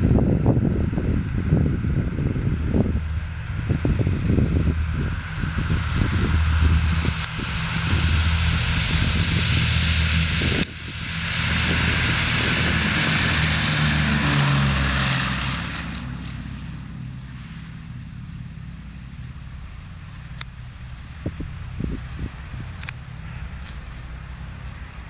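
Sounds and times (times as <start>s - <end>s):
bomber radial engines roaring: 0.0s - 25.0s.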